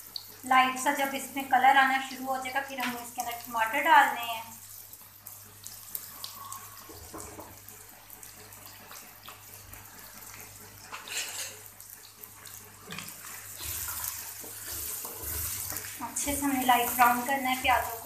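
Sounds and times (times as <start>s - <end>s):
onions sizzling in hot oil: 0.0s - 18.0s
spatula scraping a pan: 10.9s - 11.7s, 12.9s - 16.0s.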